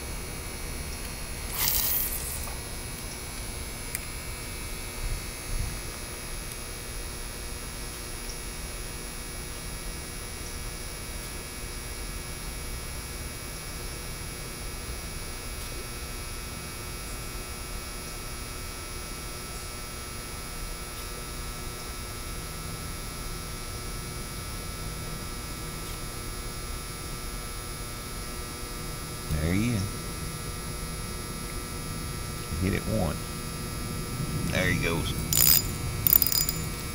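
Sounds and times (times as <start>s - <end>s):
electrical hum: 0.0s - 36.9s
faint hiss: 1.5s - 2.6s.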